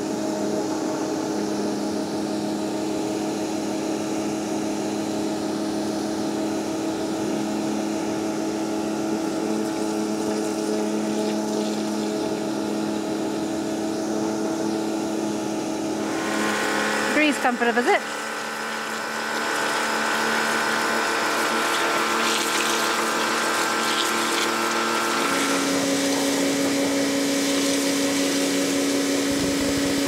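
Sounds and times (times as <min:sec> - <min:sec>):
pressure washer motor hum: 0:00.0 - 0:30.0
water jet spraying on stone: 0:09.2 - 0:13.8, 0:15.2 - 0:30.0.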